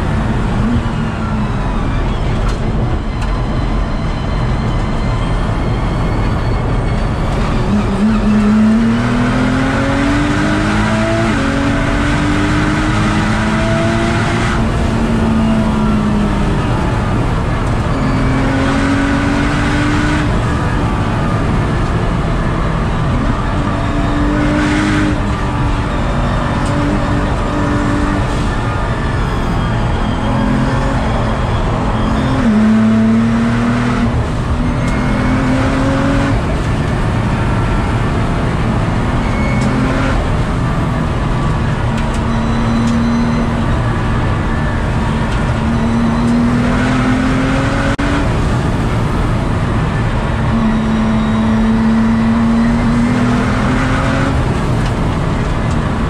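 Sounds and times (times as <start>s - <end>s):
road noise: 0.0s - 56.0s
car engine revving hard: 7.6s - 56.0s.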